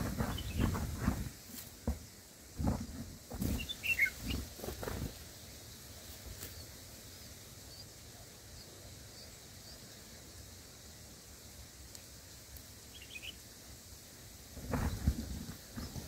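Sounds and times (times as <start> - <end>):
bird chirps: 0.0 - 0.8, 3.4 - 4.5, 12.9 - 13.4
rustling thumps of wings and leaves: 0.0 - 9.6, 10.4 - 16.0
nestlings cheeping: 3.4 - 5.1, 12.8 - 13.4.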